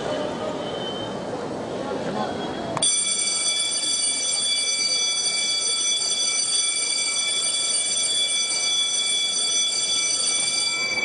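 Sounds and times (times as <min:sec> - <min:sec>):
high electronic ringing tone: 0:02.8 - 0:11.0.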